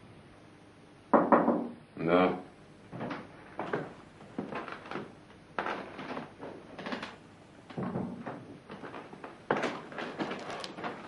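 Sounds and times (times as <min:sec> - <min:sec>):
irregular knocks and thuds: 0:02.9 - 0:11.0.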